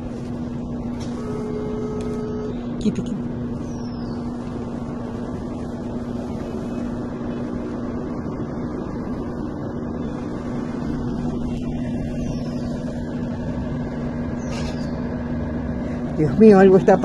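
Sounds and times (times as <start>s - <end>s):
lower hum: 0.0s - 17.0s
motor hum: 0.0s - 17.0s.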